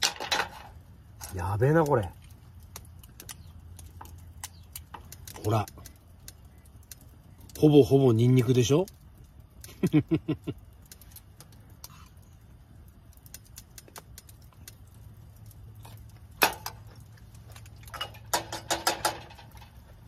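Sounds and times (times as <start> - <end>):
clinks and knocks: 0.0 - 0.8, 17.8 - 19.8
campfire crackling and popping: 0.0 - 20.0.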